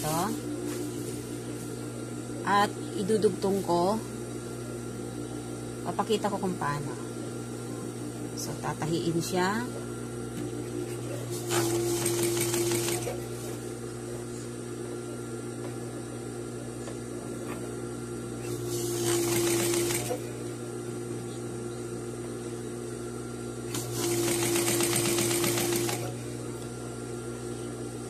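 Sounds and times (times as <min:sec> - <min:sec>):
sewing machine stitching fabric: 0:11.5 - 0:13.2, 0:18.9 - 0:20.2, 0:23.7 - 0:26.1.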